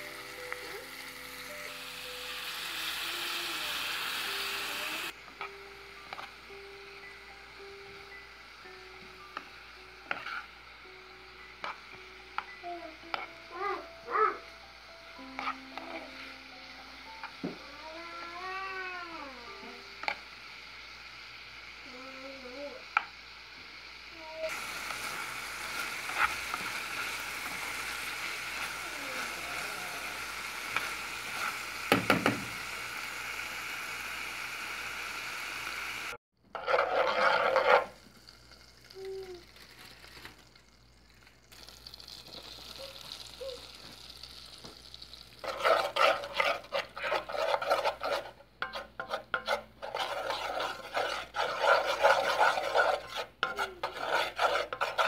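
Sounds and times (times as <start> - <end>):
butter melting in pan: 0.0 - 55.0
chicken sizzling in frying pan: 0.0 - 55.0
spatula scraping paste in pan: 10.0 - 10.5, 15.2 - 16.2, 24.5 - 32.3, 36.5 - 38.0, 44.9 - 55.0
spatula knocking on pan: 31.9 - 32.5.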